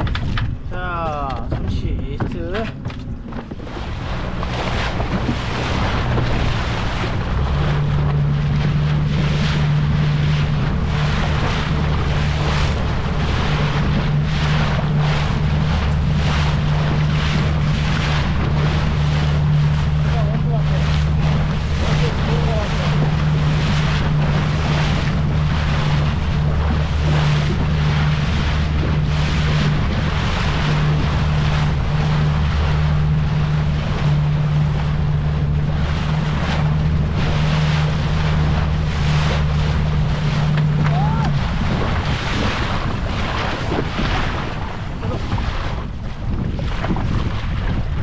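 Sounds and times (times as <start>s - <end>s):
boat engine humming: 0.0s - 48.0s
water rushing past hull: 0.0s - 48.0s
wind buffeting microphone: 0.0s - 48.0s.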